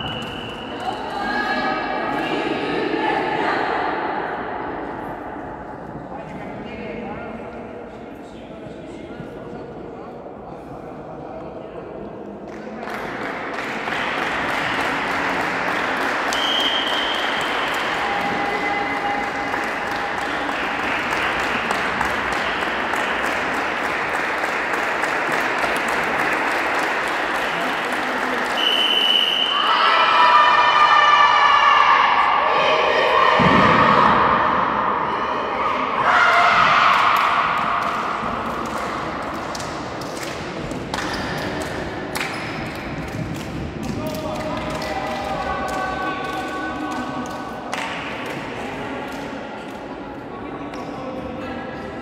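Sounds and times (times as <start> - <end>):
applause in reverberant hall: 12.4 - 29.5, 36.5 - 52.0
players cheering: 14.2 - 39.7.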